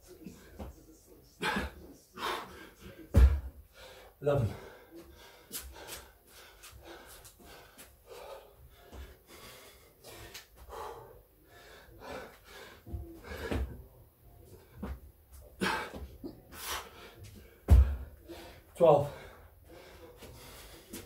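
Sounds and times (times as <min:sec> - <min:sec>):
hard breathing and panting: 0:00.0 - 0:21.0
hands and feet thudding on floor: 0:17.7 - 0:18.1.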